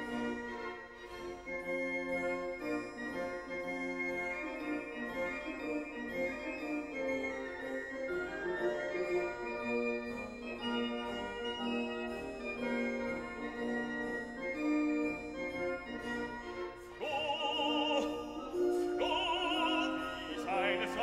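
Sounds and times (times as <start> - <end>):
operatic singer with vibrato: 17.0 - 21.0
organ-like keyboard chords: 17.0 - 21.0.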